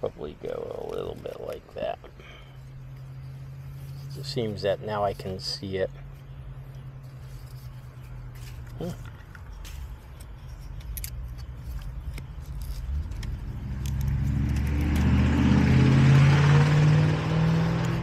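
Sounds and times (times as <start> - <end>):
car passing by: 14.0 - 18.0.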